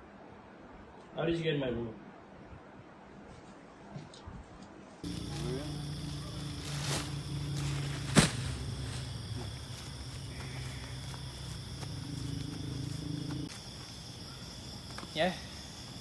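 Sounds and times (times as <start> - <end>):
steady low hum: 5.0 - 14.4
crickets chirring: 5.0 - 16.0
sharp thud: 8.0 - 8.6.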